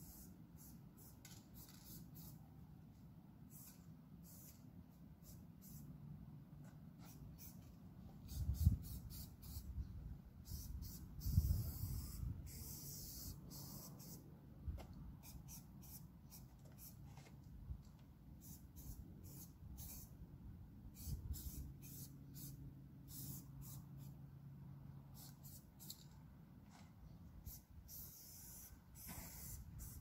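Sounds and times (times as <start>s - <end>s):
spray paint cans hissing: 0.0s - 2.4s, 3.5s - 5.9s, 7.0s - 9.8s, 10.4s - 14.2s, 15.2s - 17.1s, 18.4s - 20.1s, 20.9s - 24.2s, 25.2s - 26.2s, 27.4s - 30.0s.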